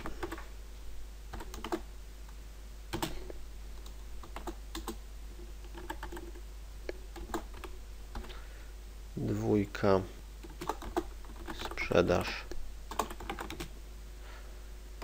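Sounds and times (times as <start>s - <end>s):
low steady hum: 0.0s - 15.0s
typing on computer keyboard: 1.4s - 1.8s, 2.9s - 3.2s, 5.7s - 6.4s, 10.4s - 11.8s, 12.9s - 13.7s.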